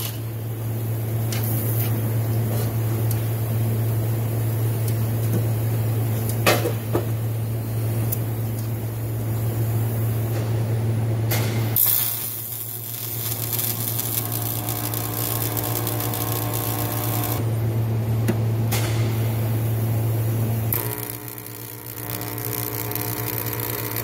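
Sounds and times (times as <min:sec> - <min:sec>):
arc welder hissing and crackling: 0:00.0 - 0:02.1, 0:11.7 - 0:17.5, 0:20.7 - 0:24.0
steady low hum: 0:00.0 - 0:24.0.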